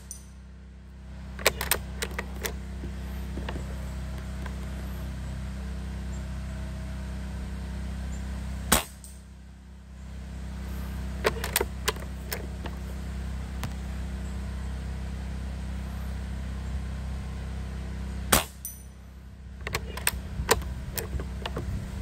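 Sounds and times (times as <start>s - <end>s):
sharp clicks: 1.4s - 4.7s, 19.6s - 21.7s
air rifle shot: 8.7s - 9.0s
wind rumble on microphone: 20.2s - 22.0s.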